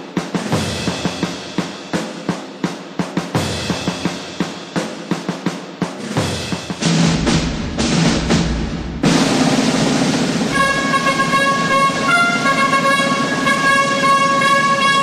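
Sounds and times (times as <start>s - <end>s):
drum beats: 0.0s - 15.0s
trumpet held note: 10.5s - 15.0s.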